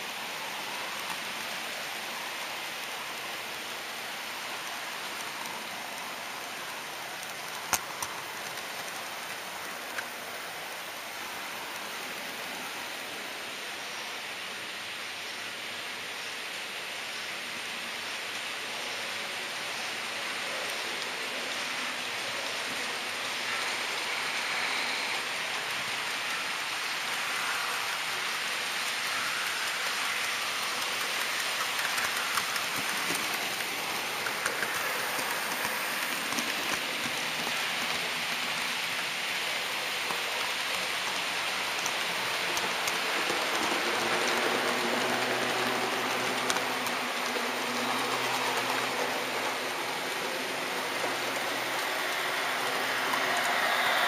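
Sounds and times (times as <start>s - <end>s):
approaching model train hum: 0.0s - 54.0s
model train wheels rattling on rail: 4.4s - 13.2s, 19.7s - 54.0s.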